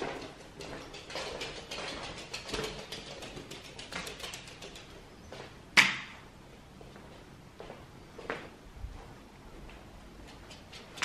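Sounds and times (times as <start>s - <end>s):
dog claws clicking on wooden floor: 0.0s - 5.0s.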